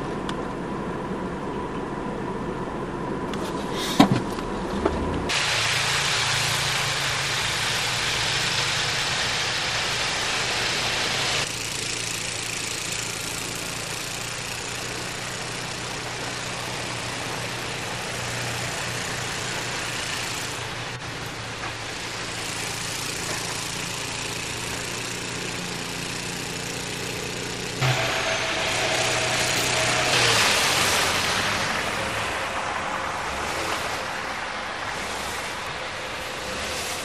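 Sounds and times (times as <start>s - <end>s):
loud rushing noise: 4.5s - 11.5s, 27.8s - 37.0s
hiss of snow thrown: 5.3s - 11.5s
snowblower engine running: 5.3s - 37.0s.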